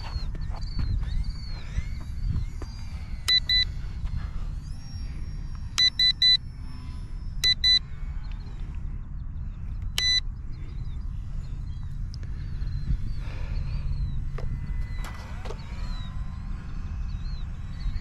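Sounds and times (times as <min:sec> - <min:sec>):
wind rumble on microphone: 0:00.0 - 0:18.0
short electronic beeps: 0:03.2 - 0:03.8, 0:04.8 - 0:07.9, 0:10.0 - 0:10.3.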